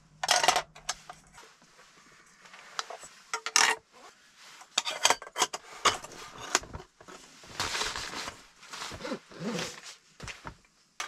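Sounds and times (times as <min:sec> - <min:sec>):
rubbing rustle: 0:05.7 - 0:10.6.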